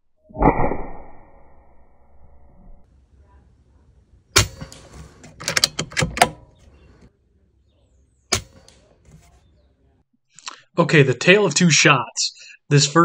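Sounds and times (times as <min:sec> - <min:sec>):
air rifle clicks: 0:04.4 - 0:07.1, 0:08.3 - 0:08.9.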